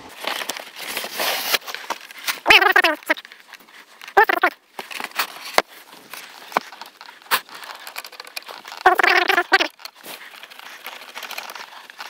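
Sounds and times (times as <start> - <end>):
packaging rustling and crinkling: 0.0 - 12.0
wavering voice-like call: 2.4 - 3.2, 4.2 - 4.6, 8.8 - 9.7.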